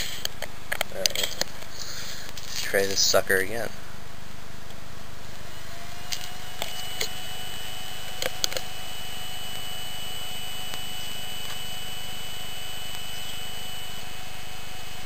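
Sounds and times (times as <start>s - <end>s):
computer electrical whine: 0.0s - 3.8s, 4.8s - 15.0s
constant low hum: 0.0s - 15.0s
higher steady tone: 5.2s - 15.0s.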